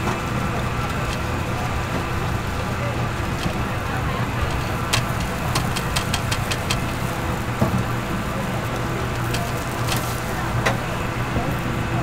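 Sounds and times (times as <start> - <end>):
low mechanical hum: 0.0 - 12.0
sharp clicks: 4.6 - 7.0.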